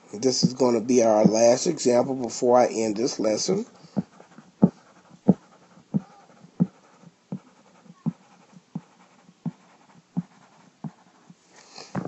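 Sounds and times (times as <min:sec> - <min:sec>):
pen shading strokes: 0:03.0 - 0:11.4.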